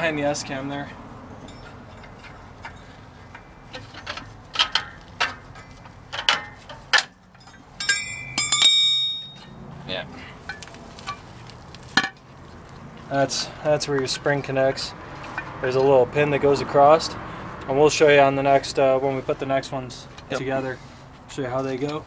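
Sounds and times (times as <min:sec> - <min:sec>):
ringing metal clinks: 0:01.3 - 0:02.9, 0:07.4 - 0:09.6
metal brake parts clanking: 0:01.3 - 0:09.6.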